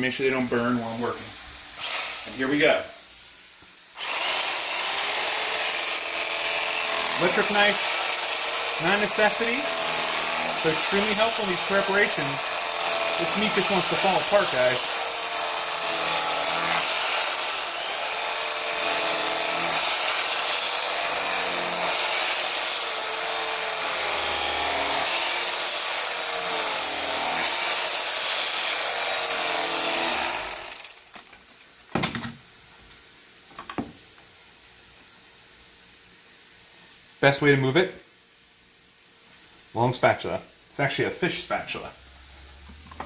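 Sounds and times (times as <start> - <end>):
electric carving knife buzzing: 4.0 - 31.2.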